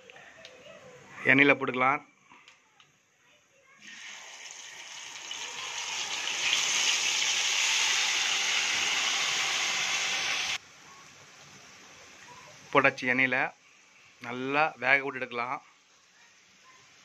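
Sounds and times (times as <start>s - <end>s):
potato slices sizzling in hot oil: 3.8s - 17.0s.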